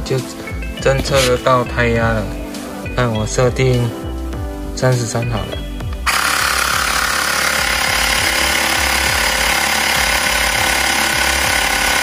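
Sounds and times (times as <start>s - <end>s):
electric air compressor running: 6.0s - 12.0s.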